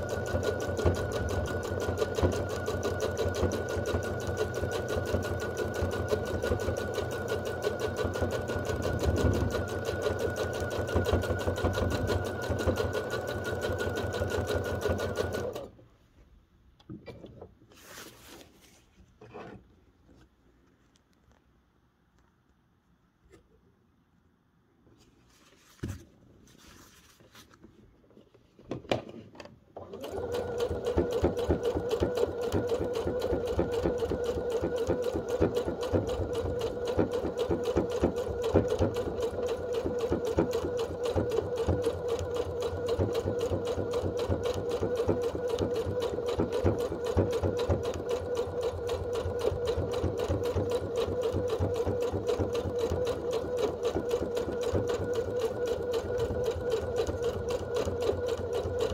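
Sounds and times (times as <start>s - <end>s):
sewing machine running: 0.0s - 15.7s, 29.8s - 58.9s.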